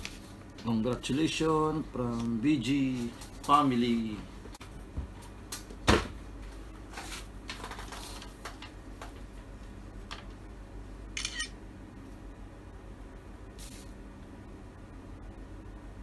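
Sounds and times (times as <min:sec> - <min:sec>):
paper rustling: 0:06.8 - 0:09.2.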